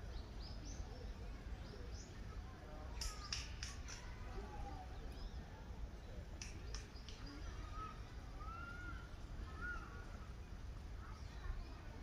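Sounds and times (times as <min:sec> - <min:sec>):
sharp clicks: 0:03.0 - 0:04.1, 0:06.4 - 0:07.4.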